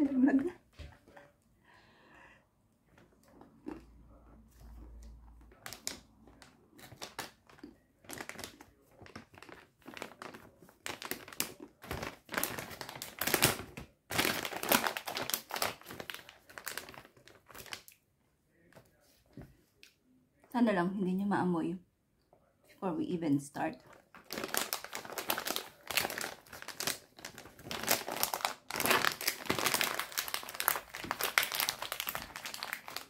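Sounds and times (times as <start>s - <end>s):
snack packet rustling and crumpling: 4.6s - 18.0s, 23.8s - 33.0s.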